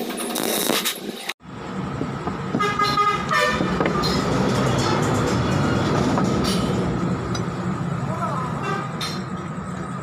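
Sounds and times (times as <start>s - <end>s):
traffic noise: 1.0s - 10.0s
vehicle horn: 2.6s - 4.2s, 8.6s - 9.0s.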